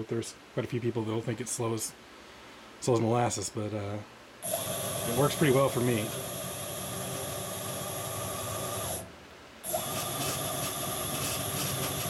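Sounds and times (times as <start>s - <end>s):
stepper motor whine: 4.4s - 9.1s.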